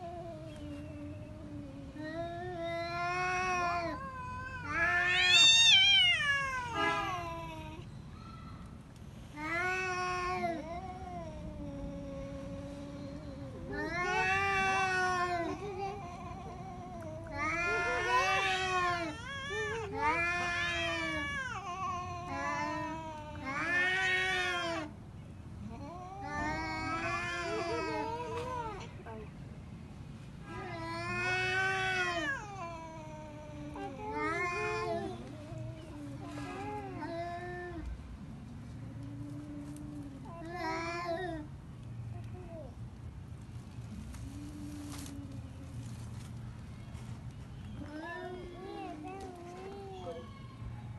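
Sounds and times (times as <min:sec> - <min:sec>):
cats yowling: 0:00.0 - 0:07.8, 0:09.4 - 0:25.0, 0:25.7 - 0:28.8, 0:30.5 - 0:37.9
cat yowling: 0:01.4 - 0:07.8.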